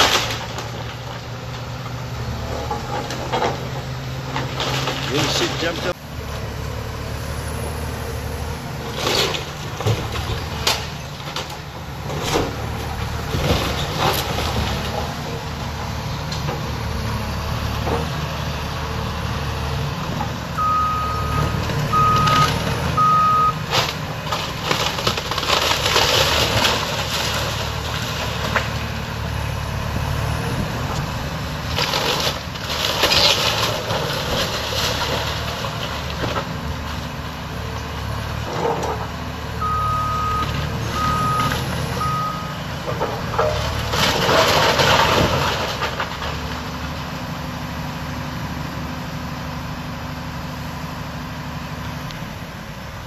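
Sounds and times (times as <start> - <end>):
falling debris: 0.0 - 1.7, 2.5 - 5.9, 8.8 - 16.7, 23.6 - 29.3, 30.9 - 37.2, 42.8 - 47.1
wood crunching and splintering: 0.0 - 6.0, 21.4 - 37.2, 42.9 - 47.0
excavator diesel engine: 0.0 - 53.0
backup alarm beeps: 20.6 - 23.6, 39.6 - 42.5.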